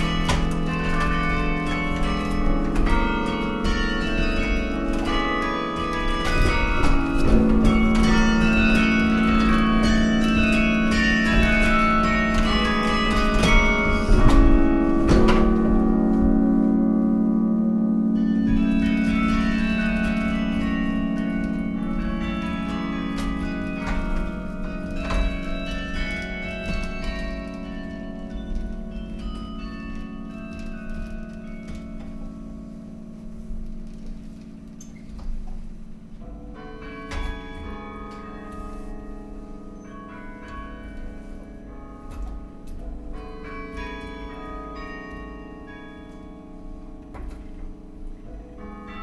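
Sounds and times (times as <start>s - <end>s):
carillon bells playing: 0.0s - 49.0s.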